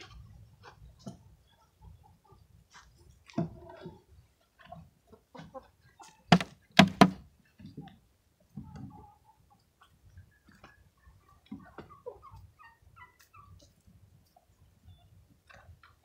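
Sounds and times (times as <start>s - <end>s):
wooden thunks and knocks: 6.3s - 7.2s.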